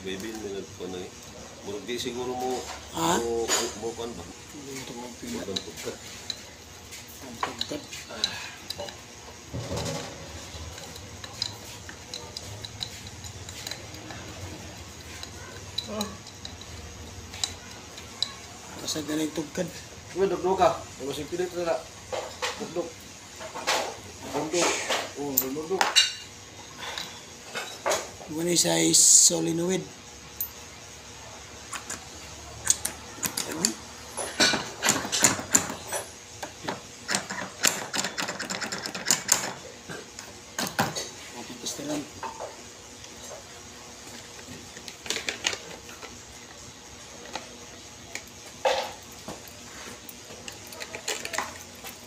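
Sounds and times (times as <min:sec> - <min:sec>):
metal parts clicking and knocking: 0:09.6 - 0:19.0, 0:32.6 - 0:39.6, 0:48.1 - 0:52.0.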